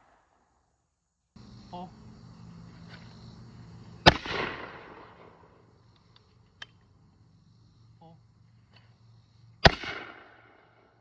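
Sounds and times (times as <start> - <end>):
shotgun shot echoing: 4.0 - 5.4, 9.6 - 10.8.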